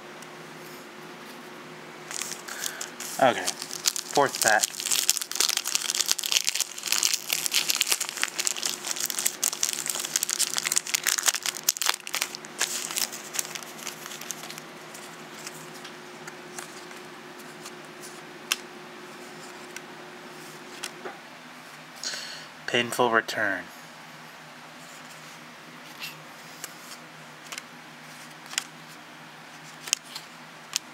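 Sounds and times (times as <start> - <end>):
foil wrapper crinkling and tearing: 2.1 - 14.6.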